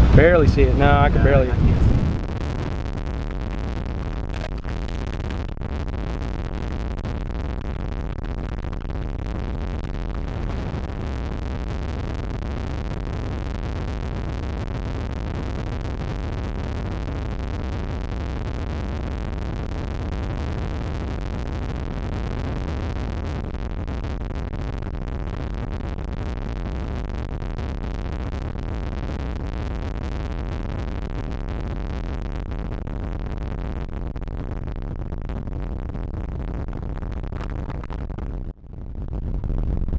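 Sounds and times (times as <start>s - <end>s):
wind rushing over microphone: 0.0s - 5.8s, 37.2s - 39.9s.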